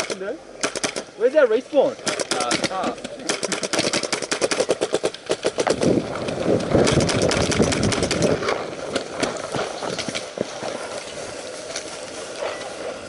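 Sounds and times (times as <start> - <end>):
paintball markers firing: 0.0 - 1.1, 2.0 - 10.3.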